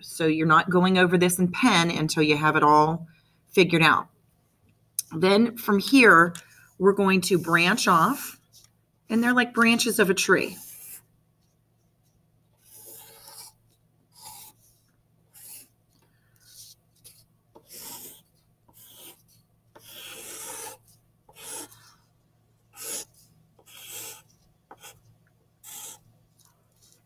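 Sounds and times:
pencil scratching on paper: 0:10.4 - 0:22.1, 0:22.7 - 0:27.0.

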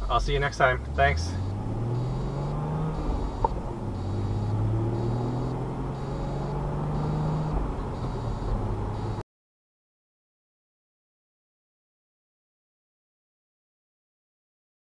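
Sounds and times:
car engine hum: 0:00.0 - 0:09.2
tyre and road noise: 0:00.0 - 0:09.2.

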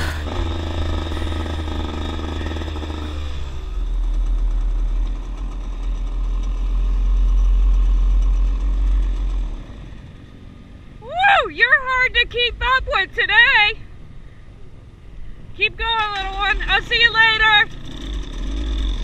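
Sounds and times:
dirt bike engine: 0:00.0 - 0:10.1.

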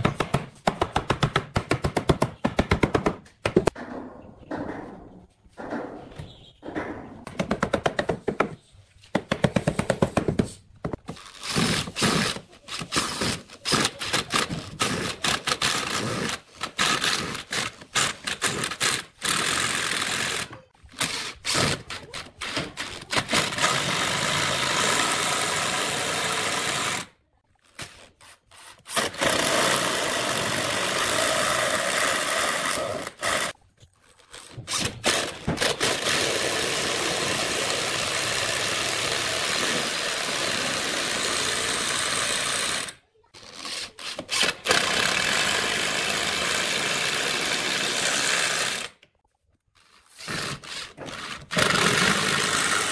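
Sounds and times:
electric drill driving screws: 0:23.1 - 0:27.1, 0:27.8 - 0:33.6, 0:34.3 - 0:49.0, 0:49.8 - 0:52.9.

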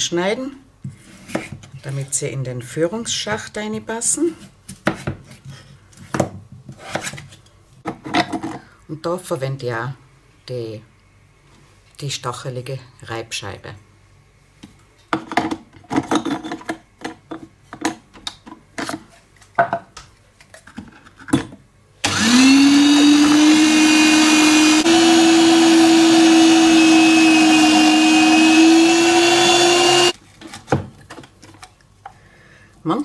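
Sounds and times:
kitchen machine motor whining: 0:22.0 - 0:30.2.

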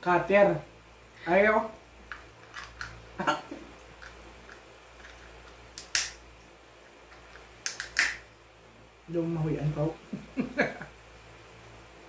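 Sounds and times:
low steady hum: 0:00.0 - 0:12.0
crab shells cracking: 0:03.9 - 0:06.2, 0:07.6 - 0:08.2.

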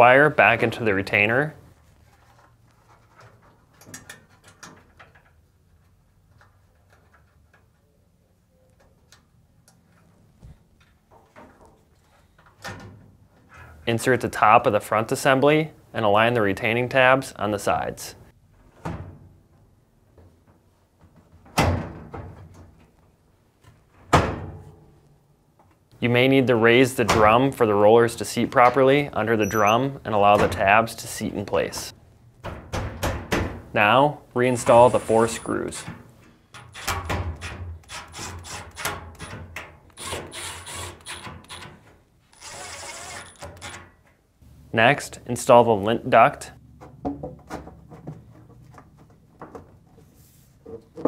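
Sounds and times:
power screwdriver whirring: 0:40.0 - 0:41.6, 0:42.3 - 0:43.8.

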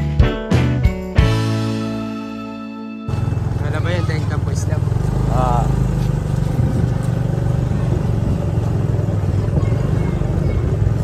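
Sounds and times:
motorcycle engine running: 0:03.1 - 0:11.0.

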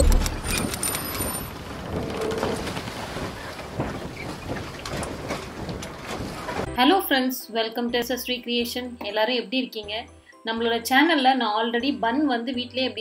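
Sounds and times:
low boom: 0:00.0 - 0:00.7.

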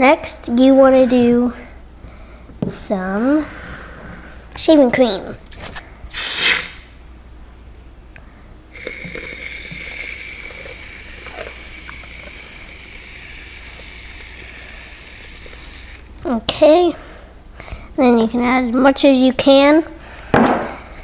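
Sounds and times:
aerosol can spraying hiss: 0:06.1 - 0:06.7, 0:08.8 - 0:16.0.

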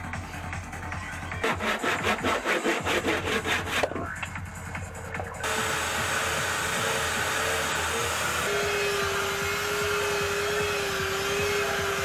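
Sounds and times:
electric power tool on wood: 0:05.4 - 0:12.0.

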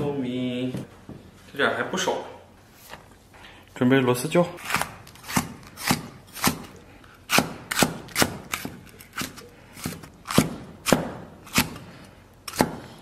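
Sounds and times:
cleaver chopping on wooden block: 0:07.3 - 0:08.8, 0:09.9 - 0:11.8, 0:12.5 - 0:13.0.

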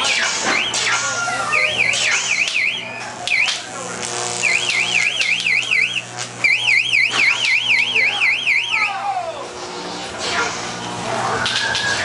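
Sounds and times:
electronic warbling alarm: 0:00.0 - 0:09.0
steady low hum: 0:00.0 - 0:12.0.

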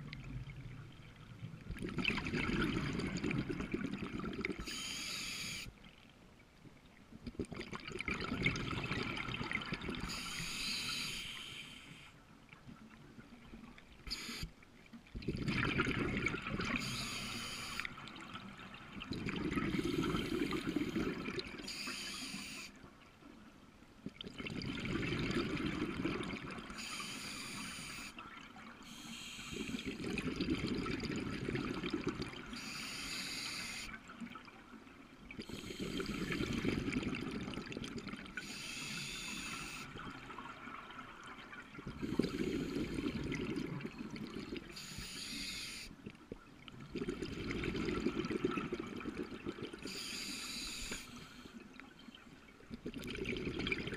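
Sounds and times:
bubbling exhaled air: 0:01.7 - 0:05.6, 0:07.3 - 0:11.6, 0:15.2 - 0:17.9, 0:19.0 - 0:21.8, 0:24.2 - 0:28.1, 0:28.9 - 0:33.8, 0:35.4 - 0:40.5, 0:41.7 - 0:45.9, 0:46.8 - 0:51.4, 0:52.7 - 0:53.9
regulator hissing inhale: 0:04.6 - 0:05.7, 0:10.1 - 0:12.2, 0:14.1 - 0:14.5, 0:16.8 - 0:17.9, 0:19.7 - 0:22.8, 0:26.8 - 0:28.2, 0:28.8 - 0:30.0, 0:32.6 - 0:34.0, 0:35.4 - 0:36.7, 0:38.4 - 0:40.0, 0:42.0 - 0:43.3, 0:44.7 - 0:46.0, 0:49.8 - 0:51.7.

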